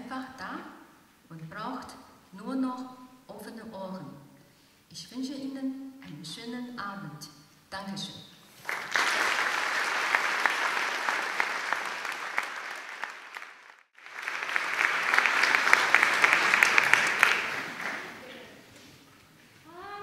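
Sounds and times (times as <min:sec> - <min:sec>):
audience applauding: 0:08.6 - 0:18.7.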